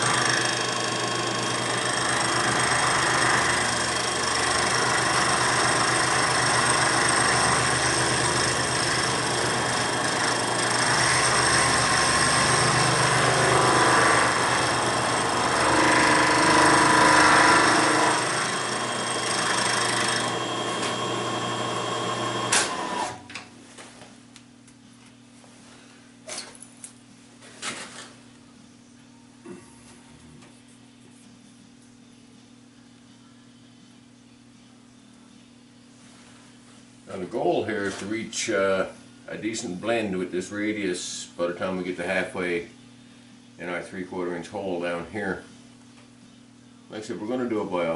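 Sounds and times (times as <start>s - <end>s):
milling machine cutting metal: 0.0s - 23.2s.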